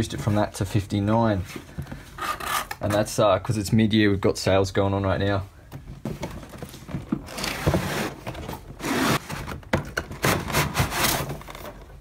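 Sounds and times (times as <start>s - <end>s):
cardboard scraping and rubbing: 6.6s - 11.8s.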